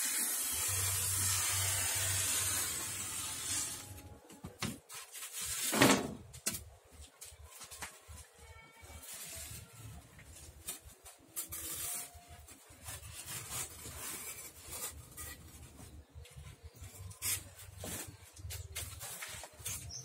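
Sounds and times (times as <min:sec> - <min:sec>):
styrofoam squeaking and scraping: 0:00.0 - 0:04.2, 0:04.8 - 0:06.2, 0:08.1 - 0:20.0.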